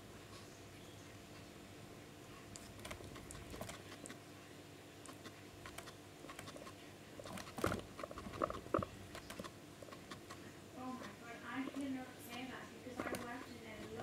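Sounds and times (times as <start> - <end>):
guinea pig nibbling hay: 2.3 - 4.2, 5.0 - 14.0.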